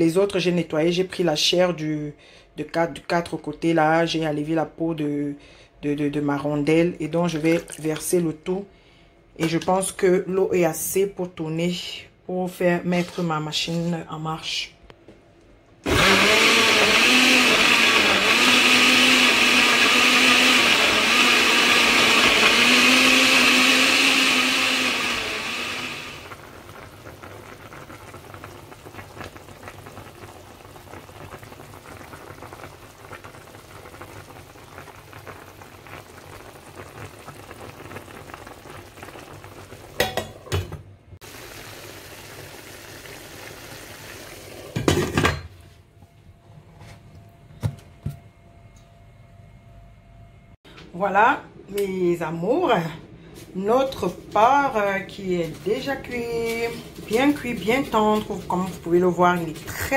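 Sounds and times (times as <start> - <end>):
blender motor humming: 15.8 - 26.6.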